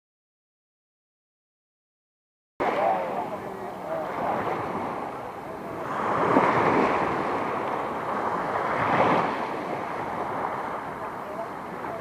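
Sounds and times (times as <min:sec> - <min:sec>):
wind noise on microphone: 0:02.6 - 0:12.0.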